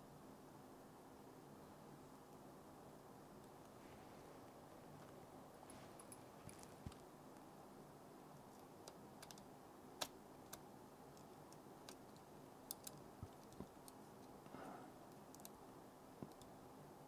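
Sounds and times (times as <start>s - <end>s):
small clicks of laptop parts: 8.5s - 14.4s, 16.2s - 16.5s.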